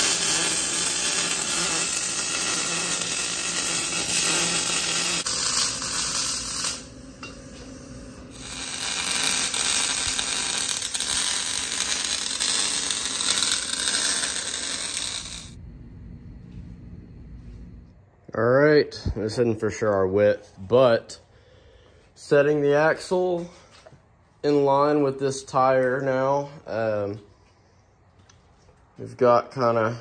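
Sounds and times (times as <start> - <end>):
welding arc crackling: 0.0 - 15.6.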